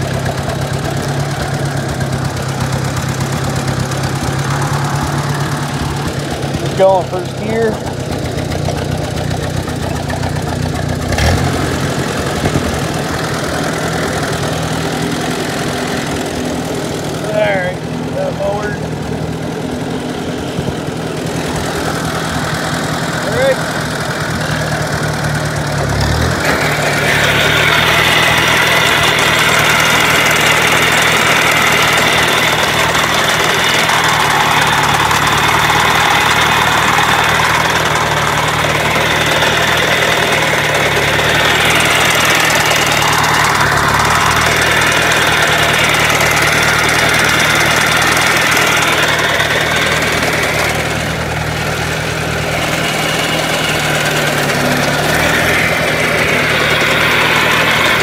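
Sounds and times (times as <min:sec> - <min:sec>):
high-pitched mower cutter: 0:00.0 - 0:08.0, 0:20.1 - 0:58.0
tractor engine running under load: 0:00.0 - 0:58.0.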